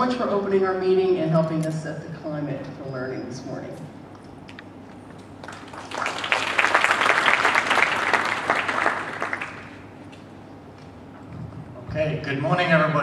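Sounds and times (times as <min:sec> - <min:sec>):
audience applauding: 0:05.4 - 0:09.8.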